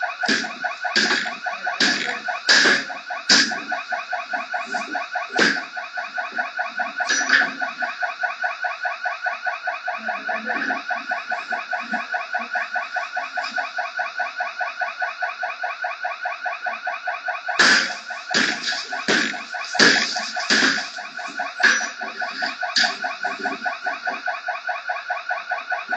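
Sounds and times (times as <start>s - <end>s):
pulsing alarm tone: 0.0s - 25.9s.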